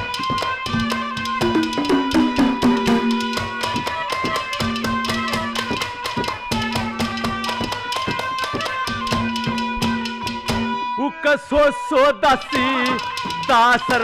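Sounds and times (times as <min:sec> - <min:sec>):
hand drum fast finger strokes: 0:00.9 - 0:03.9.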